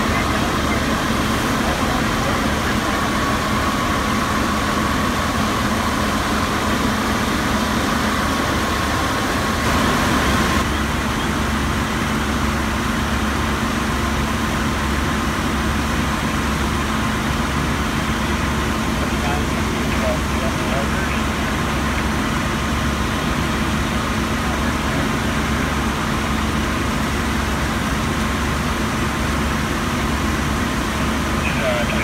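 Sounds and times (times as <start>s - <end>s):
broad rushing noise: 0.0s - 32.0s
fire engines running: 0.0s - 32.0s
thin steady whine: 0.0s - 32.0s.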